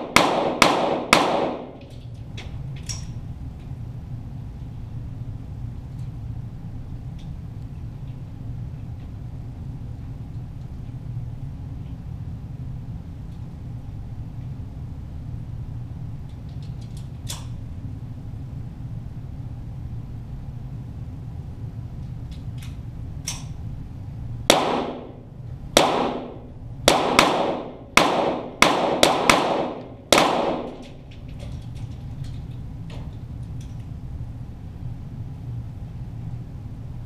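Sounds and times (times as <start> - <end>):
pistol shots: 0.0 - 1.8, 24.5 - 31.0.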